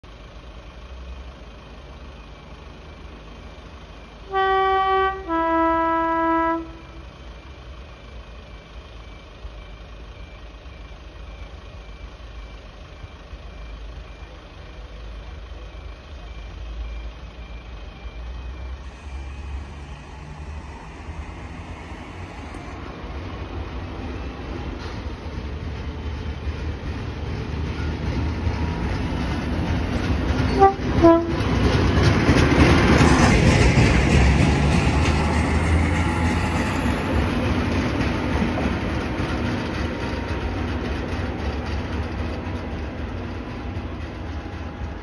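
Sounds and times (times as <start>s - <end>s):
engine low rumble: 0.0s - 45.0s
two-tone horn: 4.3s - 7.0s, 30.5s - 31.5s.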